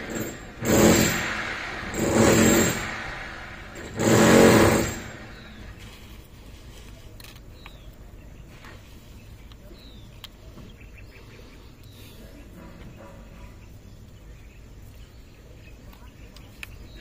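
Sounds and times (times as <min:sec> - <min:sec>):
high falling bird chirps: 0:00.0 - 0:06.1
low background rumble: 0:00.0 - 0:08.5.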